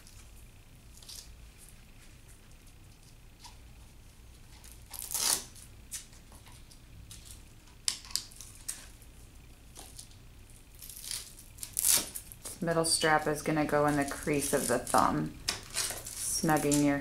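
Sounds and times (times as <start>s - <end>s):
hook-and-loop strap ripping: 4.6s - 5.6s, 10.8s - 12.3s.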